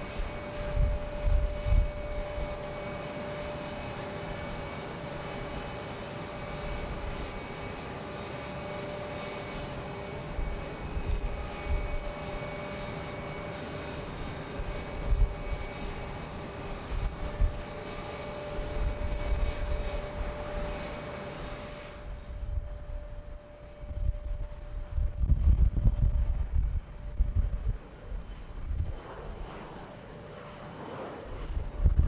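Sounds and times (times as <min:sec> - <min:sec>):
wind buffeting microphone: 0:00.0 - 0:02.9, 0:10.2 - 0:12.5, 0:14.2 - 0:20.9, 0:22.0 - 0:29.6, 0:31.3 - 0:32.0
jet engines droning: 0:00.0 - 0:32.0.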